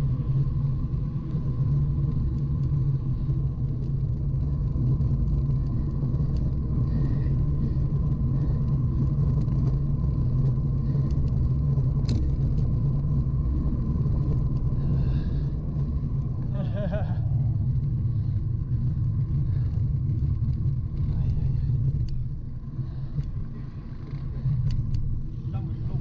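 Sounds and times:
faint ticks: 0:01.2 - 0:04.3, 0:05.0 - 0:07.3, 0:08.1 - 0:16.4, 0:18.9 - 0:25.2.

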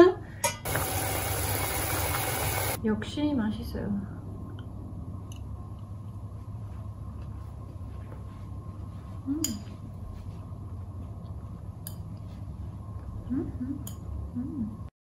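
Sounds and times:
low hum of room tone: 0:00.0 - 0:14.9
person humming: 0:13.3 - 0:14.8.

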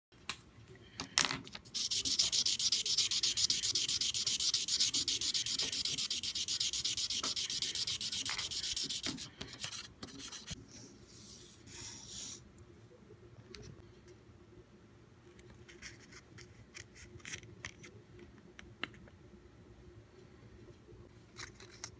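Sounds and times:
marker scribbling on paper: 0:01.8 - 0:10.6.

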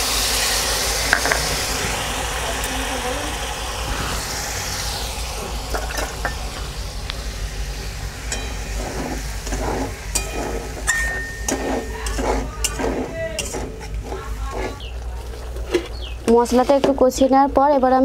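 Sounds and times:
paste sizzling: 0:00.0 - 0:17.0
spatula scraping a pan: 0:08.3 - 0:14.9.

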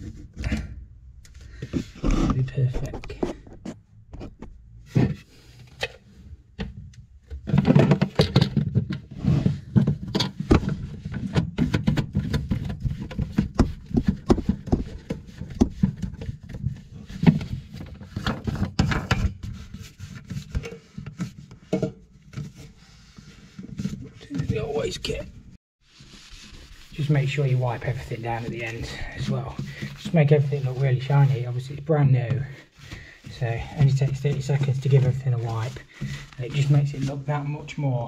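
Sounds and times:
hard plastic parts clicking and scraping: 0:00.0 - 0:25.2.

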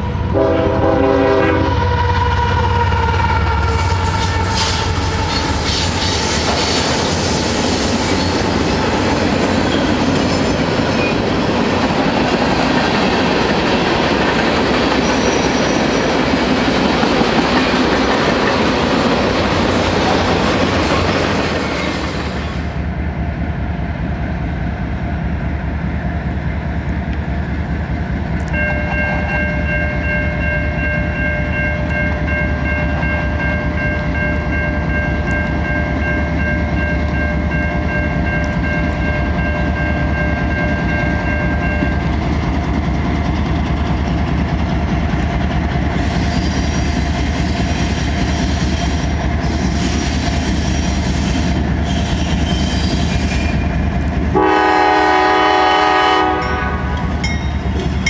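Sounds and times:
train rumbling on rails: 0:00.0 - 0:58.0
loud train horn: 0:00.2 - 0:04.9, 0:54.3 - 0:57.2.

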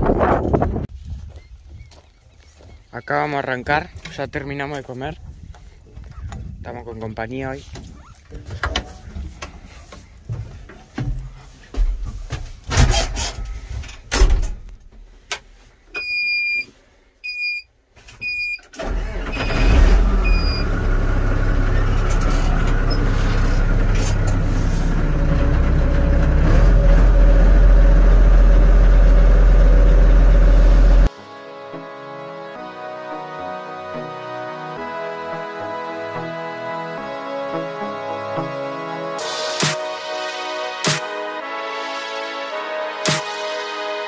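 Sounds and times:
diesel engine starting and running: 0:18.3 - 0:31.1, 0:34.9 - 0:41.5.

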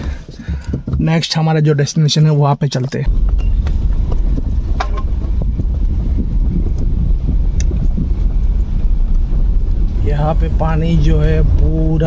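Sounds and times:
car cabin road and wind rumble: 0:03.0 - 0:12.0.

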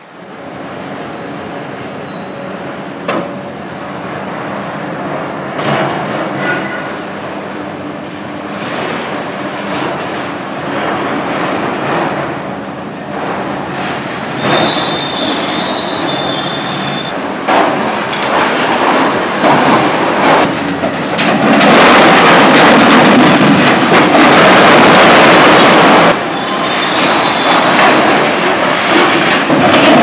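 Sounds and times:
metal screeching and grinding: 0:18.3 - 0:21.8, 0:25.5 - 0:28.2
crackling and crunching: 0:20.4 - 0:26.1.

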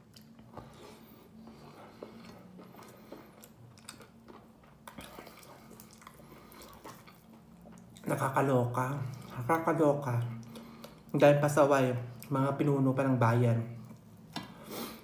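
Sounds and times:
person chewing: 0:00.0 - 0:11.2.

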